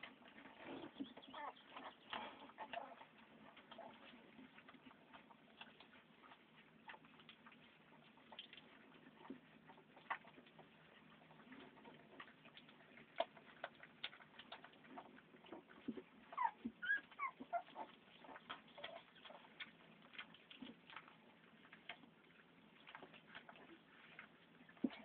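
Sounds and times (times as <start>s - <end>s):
puppies suckling: 0.0s - 25.0s
puppies squeaking and whimpering: 0.4s - 4.1s, 12.9s - 20.7s.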